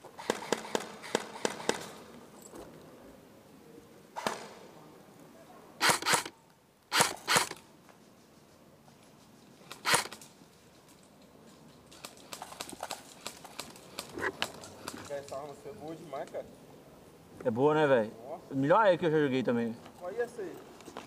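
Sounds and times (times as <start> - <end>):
airsoft rifle shots: 0.2 - 2.1, 4.2 - 4.6, 5.8 - 7.6, 9.7 - 10.2.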